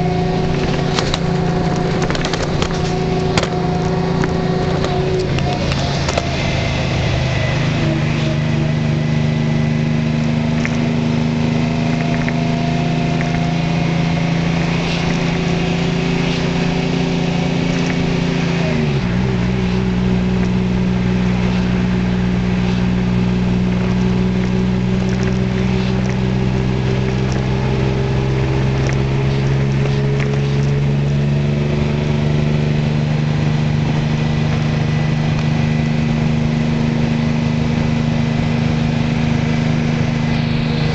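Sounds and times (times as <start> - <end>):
diesel bus engine droning: 0.0 - 40.9.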